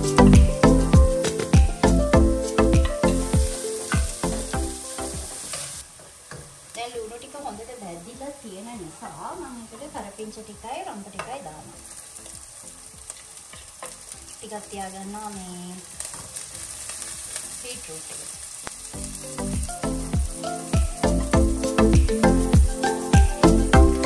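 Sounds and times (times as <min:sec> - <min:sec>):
music with strong beat: 0:00.0 - 0:05.4, 0:19.0 - 0:24.0
food sizzling in oil: 0:00.0 - 0:24.0
stirring in a pan: 0:15.8 - 0:18.7.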